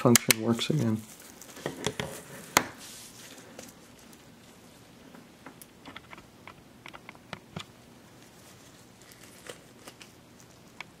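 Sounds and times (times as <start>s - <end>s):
faint room noise: 0.0s - 11.0s.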